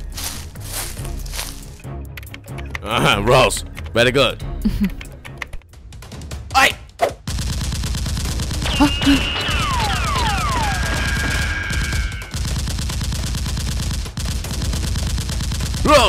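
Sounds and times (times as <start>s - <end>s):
falling whistles: 8.7s - 12.3s.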